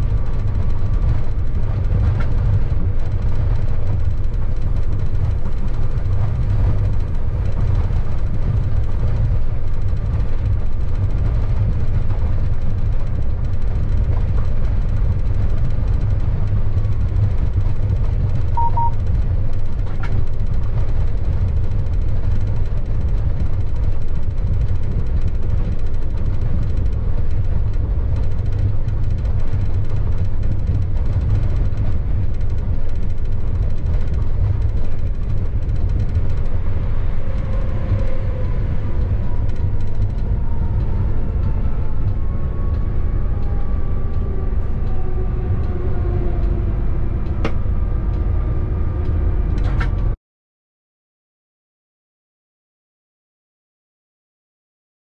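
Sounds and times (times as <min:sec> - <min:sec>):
locomotive low rumble: 0:00.0 - 0:50.2
short double beep: 0:18.6 - 0:19.0.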